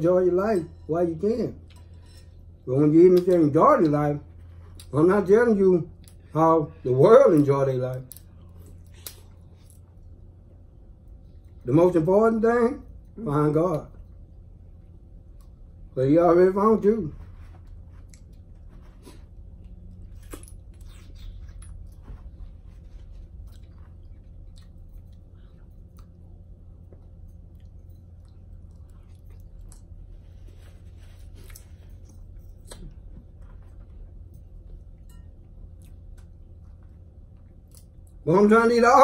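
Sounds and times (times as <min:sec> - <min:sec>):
low hum: 0:00.0 - 0:39.0
quiet chewing: 0:13.8 - 0:15.8, 0:17.4 - 0:38.2.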